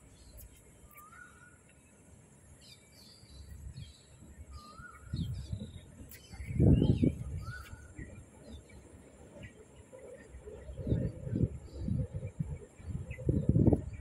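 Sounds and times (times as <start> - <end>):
birds chirping: 0.0 - 14.0.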